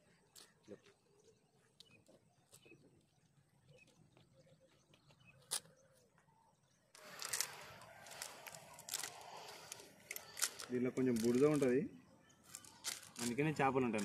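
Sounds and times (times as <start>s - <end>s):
rustling and handling noise: 6.9s - 14.0s.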